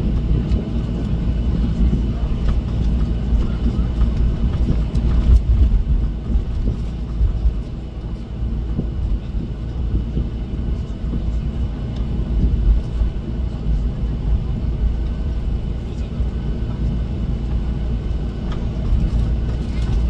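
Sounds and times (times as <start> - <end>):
jet engine cabin rumble: 0.0 - 20.0.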